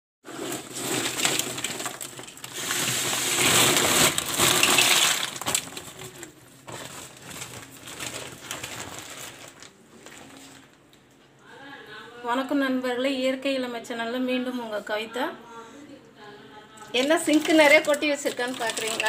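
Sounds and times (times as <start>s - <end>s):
plastic bag rustling: 0.2s - 10.8s, 16.9s - 19.0s
mussel shells clattering: 0.5s - 6.3s, 17.0s - 19.0s.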